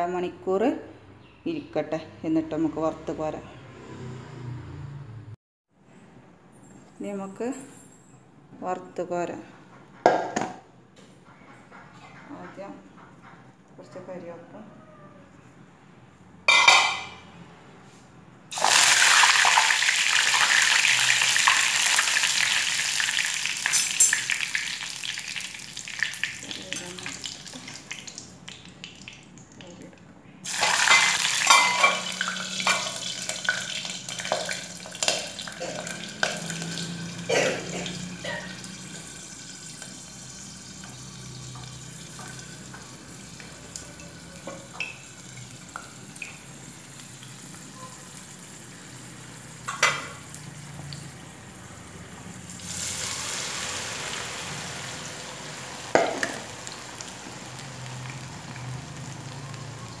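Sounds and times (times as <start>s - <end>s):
food sizzling in hot oil: 18.5s - 29.2s, 30.4s - 60.0s.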